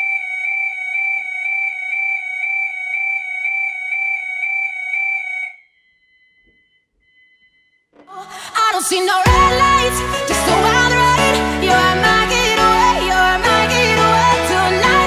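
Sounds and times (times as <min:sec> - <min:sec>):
fire alarm steady tone: 0:00.0 - 0:07.9.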